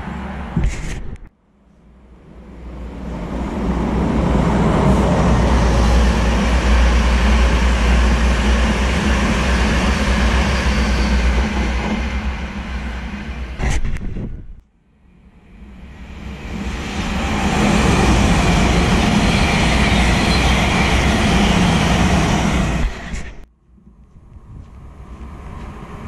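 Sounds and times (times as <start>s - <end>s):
train passing at speed: 0.0s - 0.6s, 1.6s - 13.6s, 14.9s - 26.0s.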